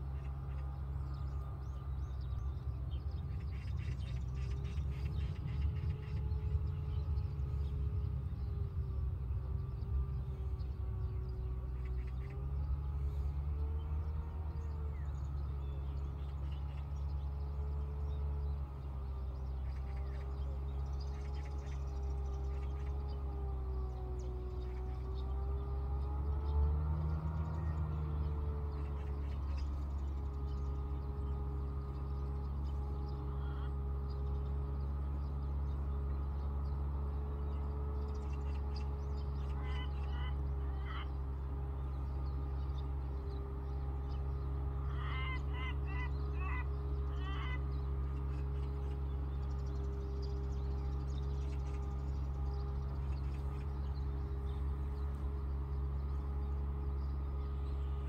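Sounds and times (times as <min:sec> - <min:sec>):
low hum: 0:00.0 - 0:58.0
bird giving harsh calls: 0:39.4 - 0:41.2, 0:44.8 - 0:48.5.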